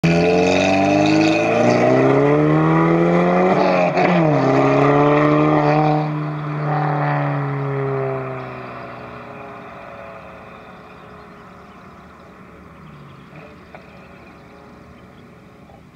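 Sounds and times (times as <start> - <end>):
car engine accelerating: 0.0 - 15.9.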